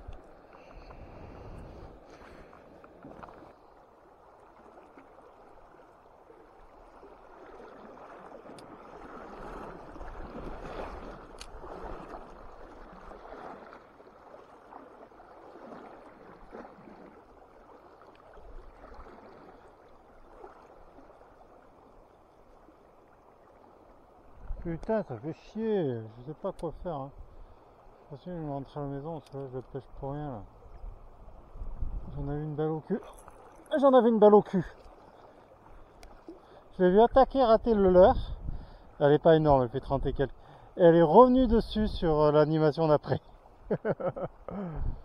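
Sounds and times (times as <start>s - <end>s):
faint clicks: 29.2s - 29.8s, 35.9s - 36.2s
river flowing over stones: 32.5s - 38.0s.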